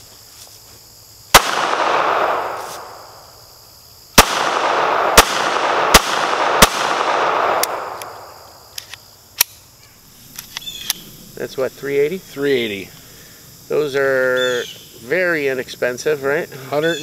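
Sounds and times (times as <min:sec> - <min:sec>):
pistol shots echoing: 0:01.3 - 0:03.1, 0:04.2 - 0:08.5.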